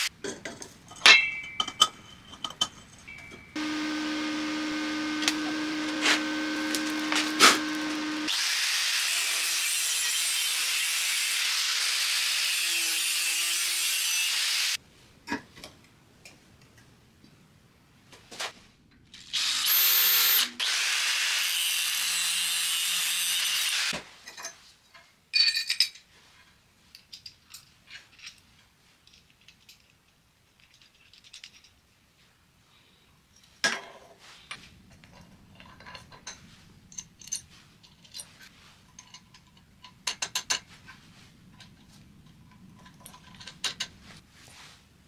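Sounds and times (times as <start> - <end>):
electric drill boring into steel: 3.6 - 14.8, 19.2 - 24.0
metallic clicks of bolts and nuts: 26.9 - 31.8, 34.9 - 40.7, 41.6 - 44.0.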